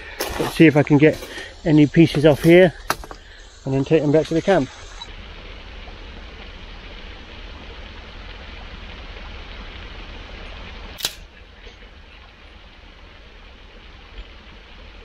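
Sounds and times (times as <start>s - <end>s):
wind: 0.0s - 15.0s
driftwood snapping: 11.0s - 11.2s.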